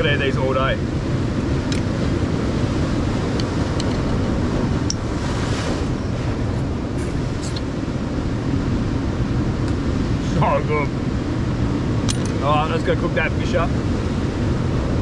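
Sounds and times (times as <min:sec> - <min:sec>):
ocean surf on rocks: 0:00.0 - 0:15.0
wind on microphone: 0:00.0 - 0:15.0.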